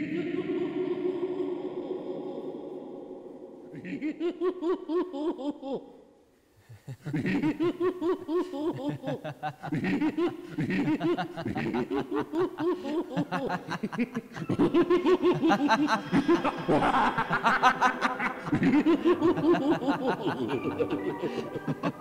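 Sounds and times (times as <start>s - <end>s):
person laughing: 3.7s - 5.9s, 6.8s - 22.0s.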